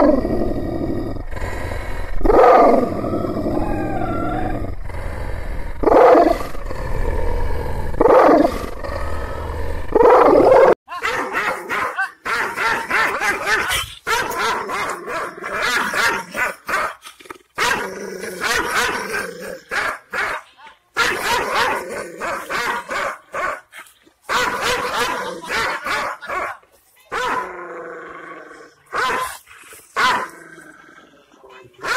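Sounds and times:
dog barking and snarling: 5.7s - 6.8s, 9.8s - 31.9s
dog giving deep barks: 19.6s - 26.6s.

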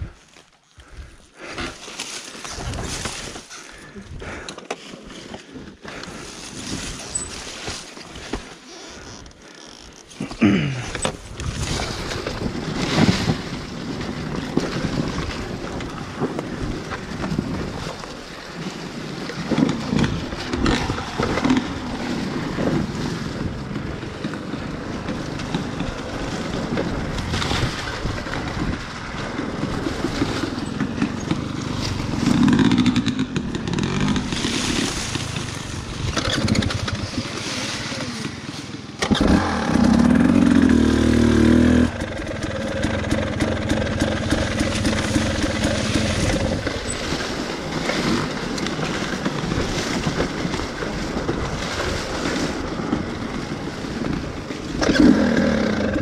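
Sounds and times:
dirt bike engine: 18.6s - 56.0s.

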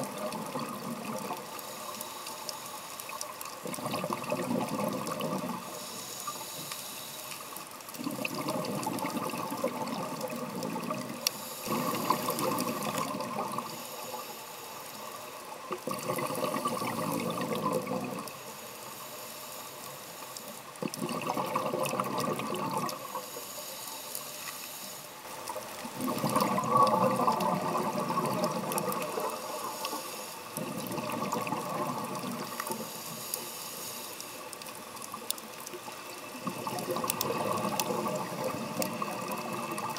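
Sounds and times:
underwater exhaled breath bubbles: 0.0s - 1.7s, 3.6s - 6.5s, 7.9s - 14.2s, 15.7s - 18.4s, 20.8s - 23.3s, 25.4s - 33.5s, 35.8s - 39.9s.

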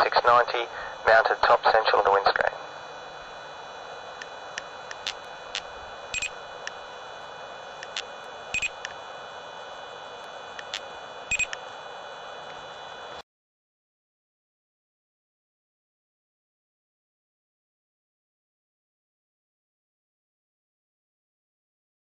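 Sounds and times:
steady hiss: 0.0s - 13.2s
speed gun beeping: 6.1s - 6.3s, 8.6s - 8.8s, 11.3s - 11.6s.

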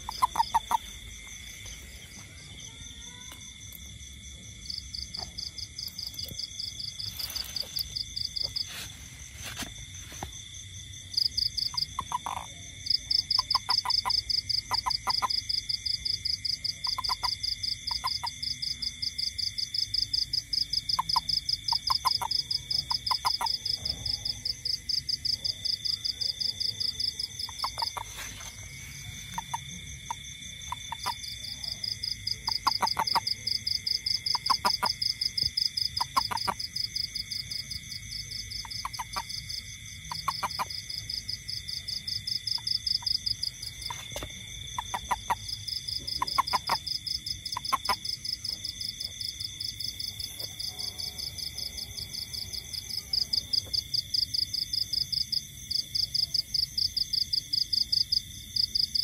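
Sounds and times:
toad chirping calls: 0.0s - 3.8s, 11.2s - 19.7s, 20.6s - 54.8s
night insect chorus: 0.0s - 59.0s.

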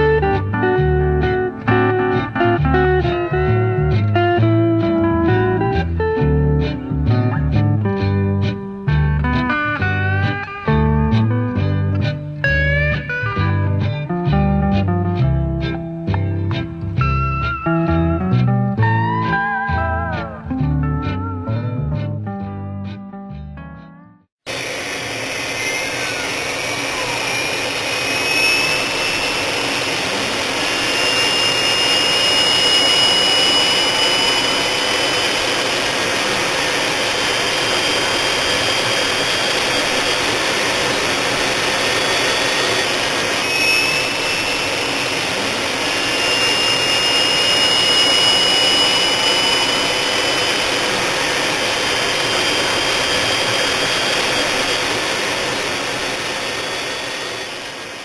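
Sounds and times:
jet engines running: 24.4s - 58.0s
faint whining tones: 24.5s - 58.0s.

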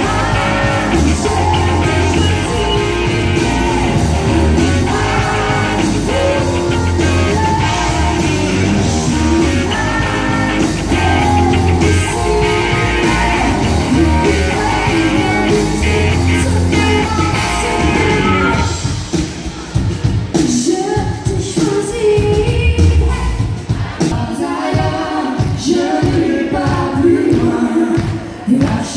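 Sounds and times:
woman singing: 0.0s - 18.8s, 20.4s - 28.9s
rock country band playing: 0.0s - 20.7s.

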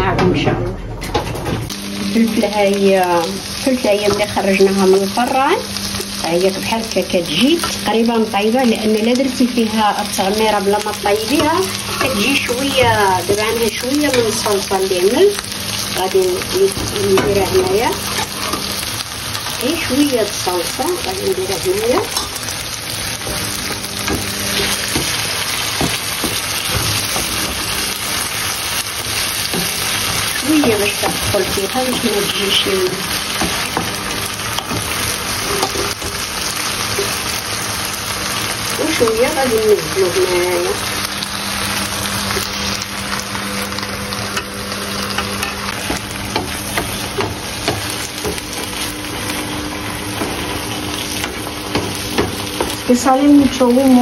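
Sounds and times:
meat filling sizzling in a frying pan: 1.7s - 54.0s
utensil scraping a pan: 16.7s - 19.7s, 34.6s - 36.2s.

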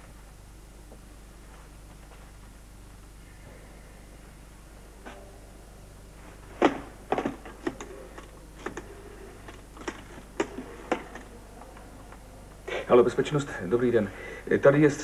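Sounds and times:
telephone handset clattering: 6.7s - 11.3s.

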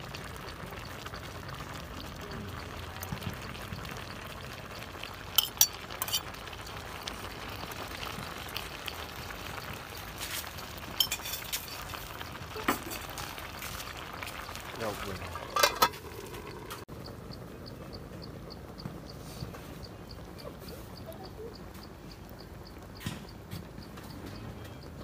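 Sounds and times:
soup bubbling in a pot: 0.0s - 25.0s
plate clinking against metal pot: 5.3s - 6.4s, 10.9s - 12.0s, 15.4s - 16.0s.

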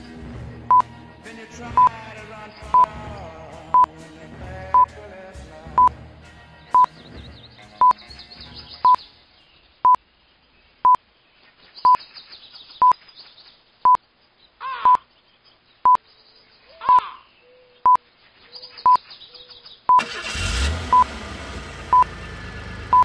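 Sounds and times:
quiet background music: 0.0s - 9.8s.

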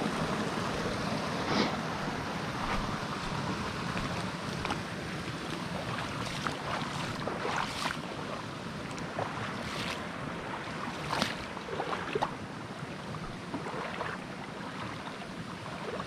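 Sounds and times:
footsteps splashing in water: 2.6s - 8.1s, 8.8s - 10.1s, 10.8s - 12.4s, 13.5s - 15.2s.

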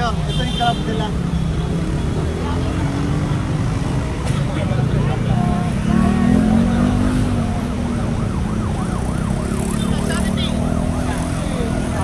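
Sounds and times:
crowd noise: 0.0s - 12.0s
traffic: 0.0s - 12.0s
siren yelping: 6.5s - 12.0s.

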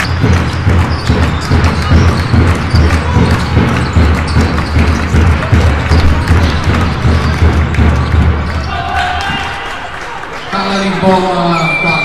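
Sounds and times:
basketball bouncing on hardwood: 0.0s - 8.7s
sports hall din: 0.0s - 12.0s.

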